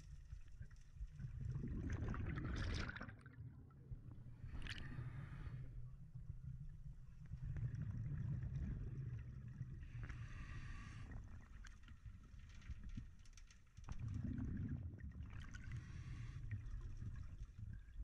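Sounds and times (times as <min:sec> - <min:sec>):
underwater water rumble: 0:00.0 - 0:18.0
scuba exhaust bubbles: 0:01.1 - 0:11.4, 0:13.9 - 0:18.0.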